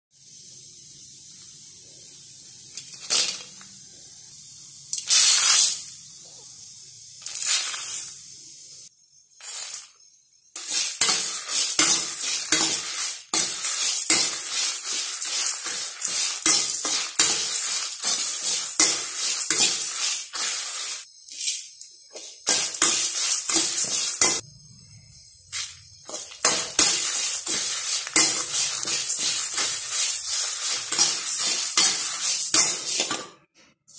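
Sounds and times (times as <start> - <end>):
steady hiss: 0.2 - 10.0, 10.6 - 33.1
seeds rattling: 7.2 - 8.2, 10.6 - 21.6, 25.6 - 33.0
ladle scraping metal pan: 10.6 - 21.0, 22.5 - 24.4, 26.1 - 33.3.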